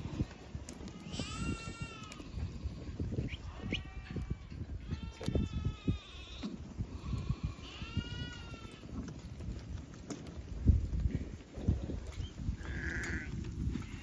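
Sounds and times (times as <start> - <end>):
hooves trotting on dry dirt: 0.0 - 14.0
sheep bleating: 3.5 - 9.0, 12.6 - 14.0.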